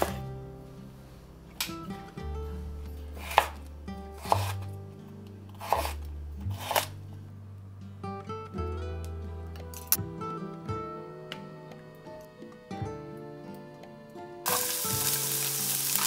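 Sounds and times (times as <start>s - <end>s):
soft background music: 0.0s - 16.0s
knife chopping on cutting board: 3.2s - 3.6s, 4.2s - 4.7s, 5.6s - 6.9s.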